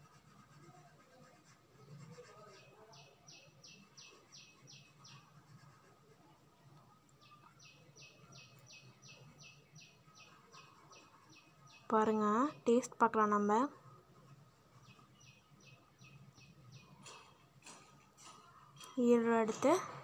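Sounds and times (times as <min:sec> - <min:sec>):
high bird chirps: 0:03.0 - 0:05.3, 0:07.2 - 0:12.7, 0:14.7 - 0:17.2.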